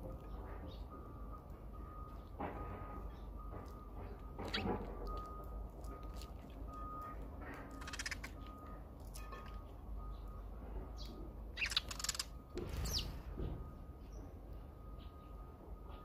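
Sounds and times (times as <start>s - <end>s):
birds harsh calls: 7.8s - 8.4s, 11.0s - 13.3s.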